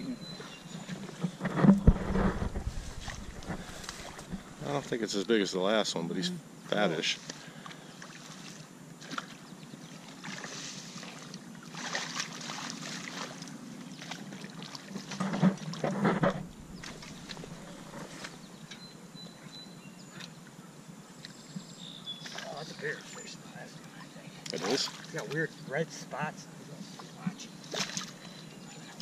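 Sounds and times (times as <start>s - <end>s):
fish thrashing and splashing: 1.8s - 4.6s, 10.2s - 13.4s, 14.0s - 18.4s.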